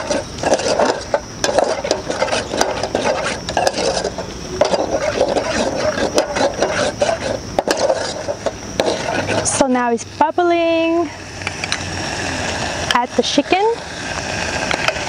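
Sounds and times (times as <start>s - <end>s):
metal ladle scraping saucepan: 0.0s - 9.6s.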